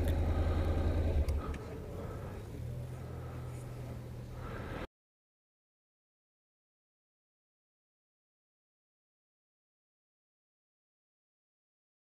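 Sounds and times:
motorcycle engine idling: 0.0 - 4.8.

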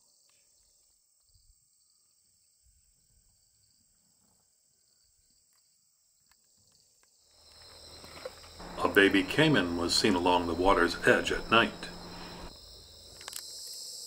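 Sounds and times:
night insects chorus: 6.7 - 14.0.

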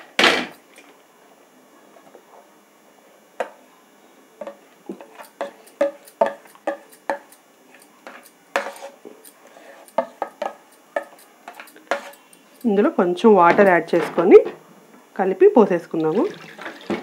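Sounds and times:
metal spoon scraping cookware: 5.1 - 10.2, 11.0 - 12.8.

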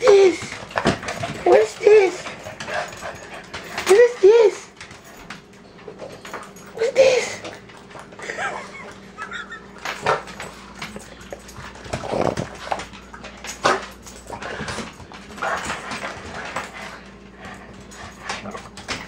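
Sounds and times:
dogs whining and yelping: 0.0 - 10.5.

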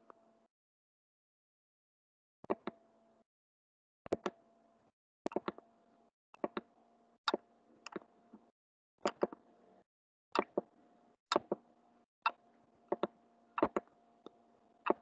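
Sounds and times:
computer mouse clicks: 10.4 - 10.7.

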